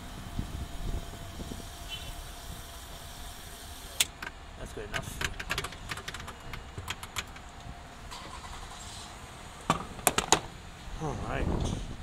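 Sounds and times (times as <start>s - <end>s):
fuel nozzle clicking and knocking: 5.0s - 7.5s, 9.7s - 10.5s.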